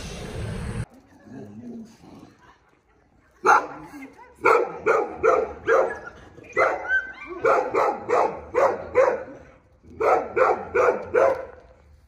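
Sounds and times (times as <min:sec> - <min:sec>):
dog barking: 0:03.4 - 0:03.8, 0:04.4 - 0:06.0, 0:06.6 - 0:09.4, 0:10.0 - 0:11.6.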